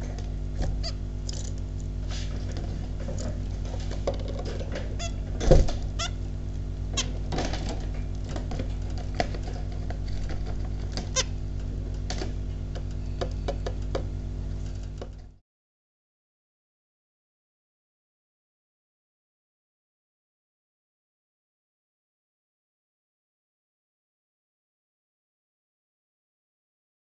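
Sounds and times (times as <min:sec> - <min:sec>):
steady low hum: 0:00.0 - 0:15.4
finches calling: 0:00.8 - 0:01.0, 0:05.0 - 0:05.2, 0:06.0 - 0:06.3.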